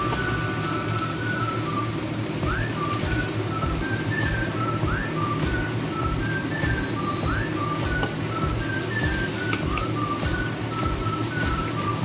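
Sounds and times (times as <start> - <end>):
whistled melody: 0.0 - 12.0
steady low beat: 2.4 - 12.0.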